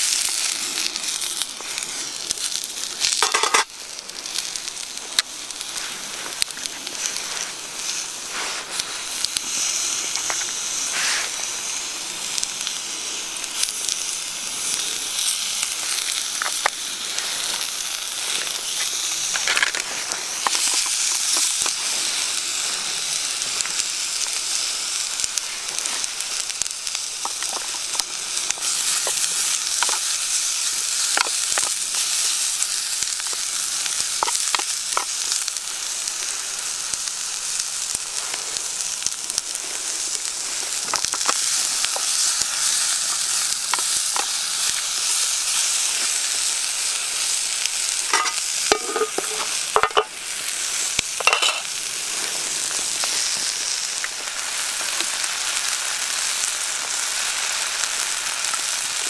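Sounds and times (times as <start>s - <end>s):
food sizzling in a frying pan: 0.0s - 59.0s
wooden spatula scraping a pan: 10.3s - 11.3s, 48.1s - 50.1s.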